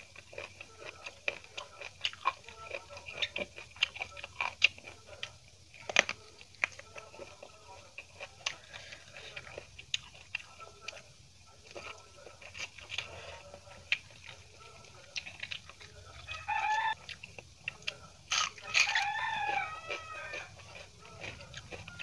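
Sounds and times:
chewing: 0.0 - 22.0
fingers mixing rice: 0.0 - 22.0
chicken calling: 15.9 - 17.1, 18.3 - 22.0.

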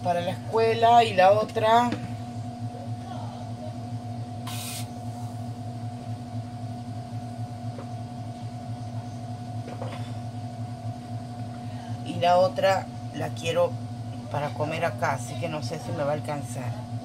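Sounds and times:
low hum: 0.0 - 17.0
short hiss: 4.4 - 4.9.

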